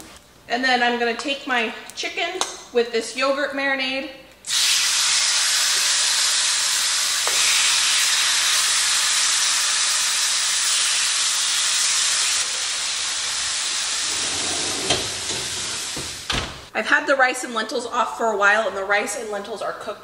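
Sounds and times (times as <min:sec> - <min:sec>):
chicken sizzling in a skillet: 0:04.5 - 0:14.1.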